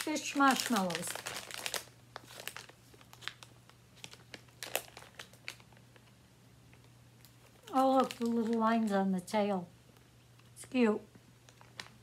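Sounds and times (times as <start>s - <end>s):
plastic bag crinkling: 0.0s - 6.1s, 7.2s - 9.1s, 11.4s - 12.0s.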